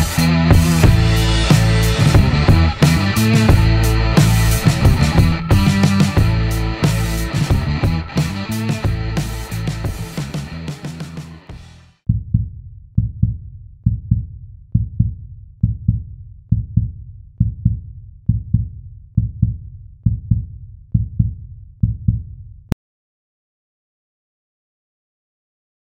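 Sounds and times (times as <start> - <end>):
heartbeat thumps: 0.0 - 10.5, 11.6 - 22.4
rock music: 0.0 - 11.9.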